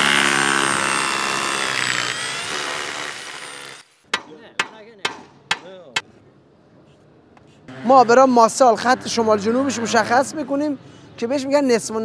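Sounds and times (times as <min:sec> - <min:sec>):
hammer striking steel pipe: 0:04.1 - 0:05.7.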